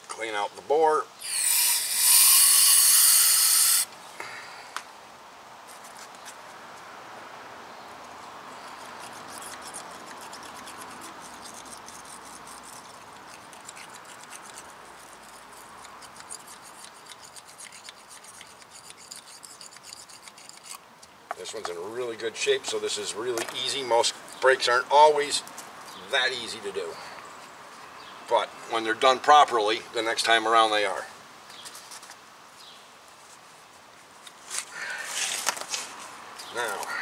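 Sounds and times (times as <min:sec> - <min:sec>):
aerosol spray hissing: 0:01.2 - 0:03.9
scratchy scrubbing: 0:08.7 - 0:20.8.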